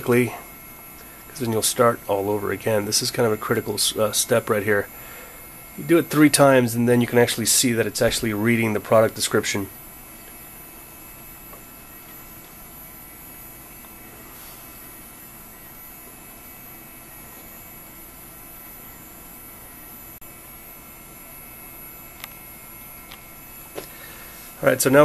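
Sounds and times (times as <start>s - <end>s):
computer cooling fan whirring: 0.0s - 25.0s
faint whine tones: 0.0s - 25.0s.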